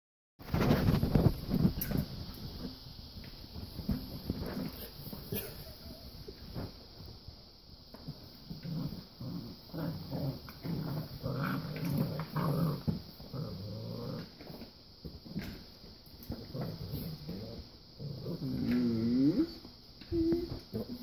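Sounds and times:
puppies play-growling: 3.6 - 6.7, 7.9 - 21.0.

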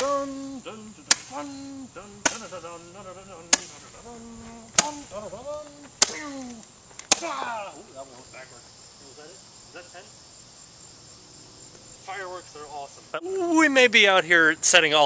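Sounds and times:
roman candle pops: 2.2 - 2.5, 4.8 - 7.3.

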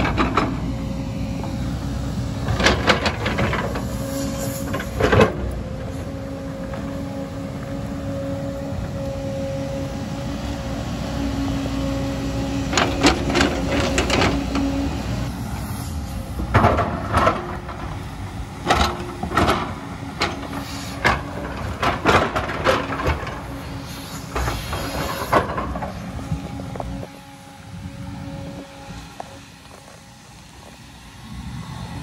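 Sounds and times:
excavator diesel engine whining: 0.0 - 32.0.

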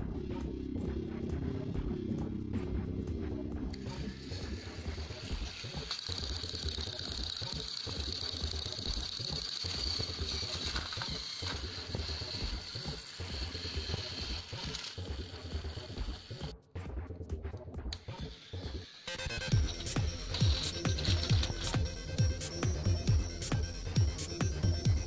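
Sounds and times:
toy train motor whirring: 3.7 - 16.5, 17.9 - 25.0.

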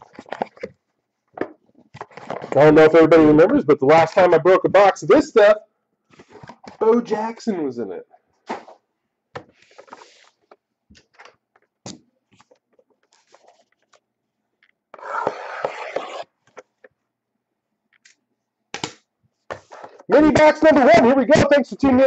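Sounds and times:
cardboard scraping: 9.5 - 10.4, 15.0 - 16.4.

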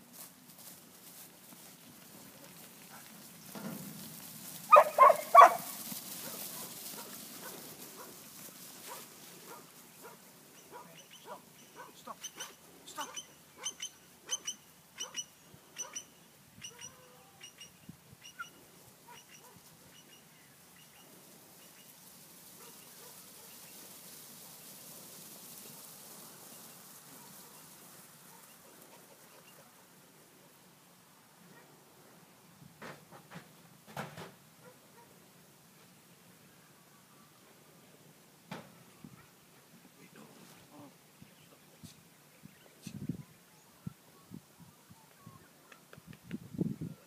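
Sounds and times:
dog barking: 4.7 - 8.2, 8.9 - 17.1, 19.1 - 19.6, 22.6 - 23.6, 31.5 - 31.7, 34.6 - 35.2.

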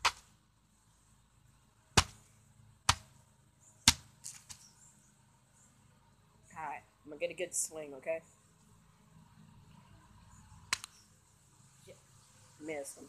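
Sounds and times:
hatchet whacking cabbage: 0.0 - 0.3, 2.0 - 2.2, 2.9 - 3.1, 3.9 - 4.6.

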